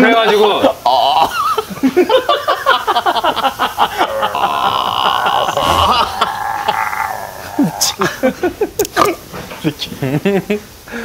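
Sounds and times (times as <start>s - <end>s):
man laughing: 1.2s - 6.8s
man imitating stomach gurgle: 4.4s - 8.1s.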